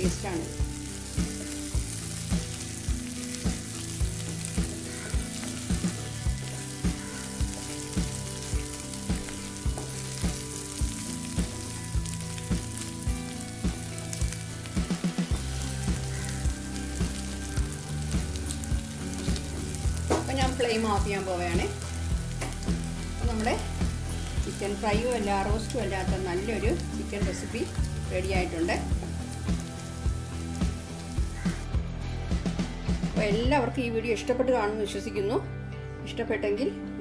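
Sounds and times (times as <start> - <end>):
chicken sizzling in a pan: 0.0 - 33.3
wooden spatula knocking pan: 20.0 - 20.5.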